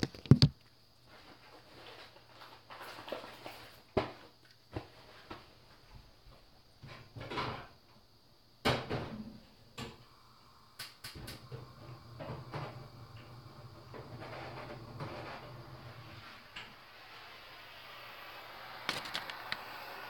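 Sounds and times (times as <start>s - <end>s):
small objects clicking and knocking: 18.9s - 19.7s.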